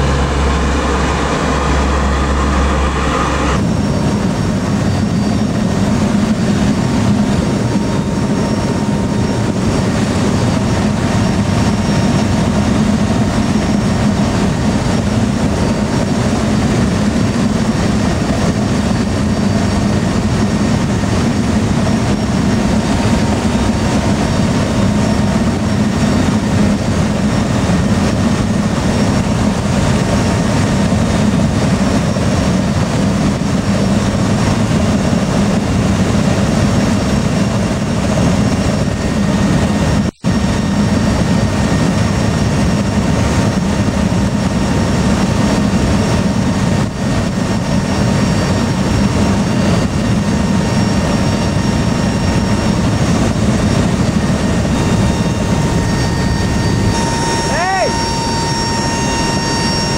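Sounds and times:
turboprop aircraft cabin drone: 0:00.0 - 0:59.9
faint steady tones: 0:53.7 - 0:59.9.

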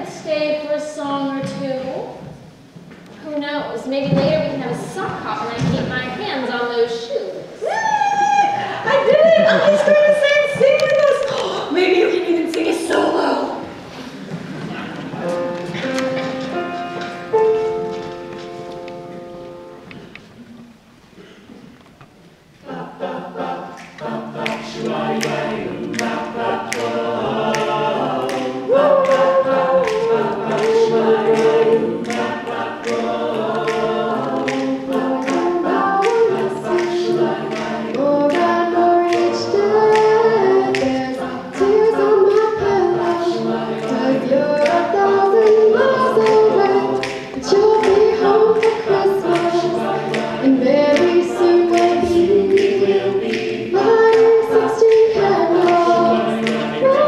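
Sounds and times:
choir singing in harmony: 0:08.4 - 0:20.2, 0:22.5 - 0:57.0
steady beat of sharp clicks: 0:14.2 - 0:20.3, 0:21.8 - 0:57.0.

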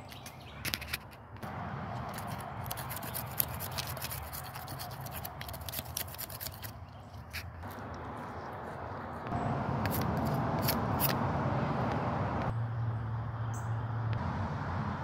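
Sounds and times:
knife scraping bark: 0:02.0 - 0:11.2.

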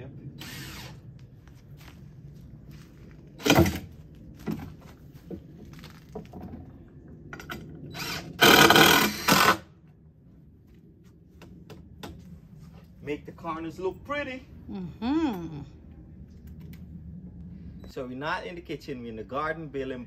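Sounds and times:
power drill burst: 0:00.4 - 0:01.0, 0:07.9 - 0:09.7.

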